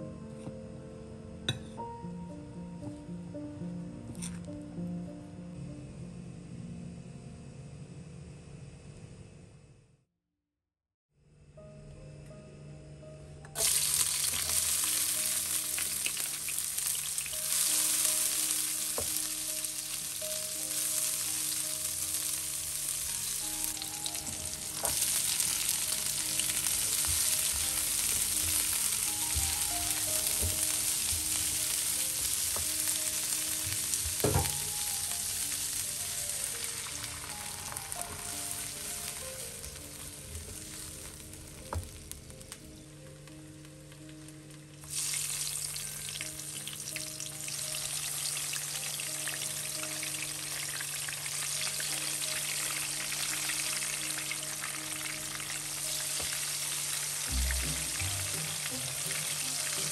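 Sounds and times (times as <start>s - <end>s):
food sizzling in hot oil: 13.6s - 42.6s, 44.8s - 59.9s
sharp knocks on a pan: 34.2s - 34.6s.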